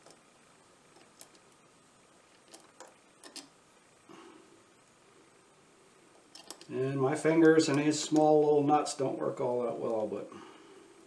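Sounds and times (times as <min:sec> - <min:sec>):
small metal parts clicking: 0:02.3 - 0:03.5, 0:06.2 - 0:06.7.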